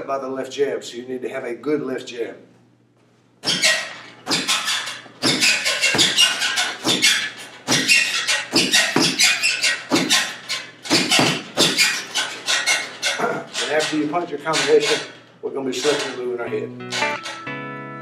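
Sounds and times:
punches on heavy bag: 10.9 - 11.8.

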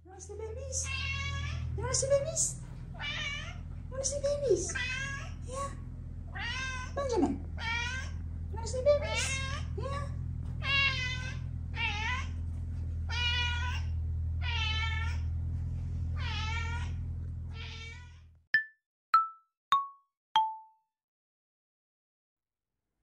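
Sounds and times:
steady low hum: 0.0 - 17.5
cat meowing: 0.8 - 1.7, 3.0 - 3.6, 4.7 - 5.4, 6.3 - 7.0, 7.6 - 8.2, 9.0 - 9.8, 10.6 - 12.4, 13.1 - 15.3, 16.2 - 18.2.

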